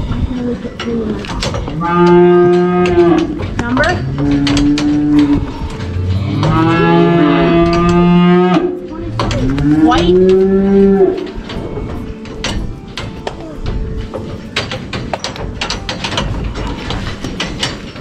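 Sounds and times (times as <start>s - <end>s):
cattle mooing: 1.0s - 12.2s.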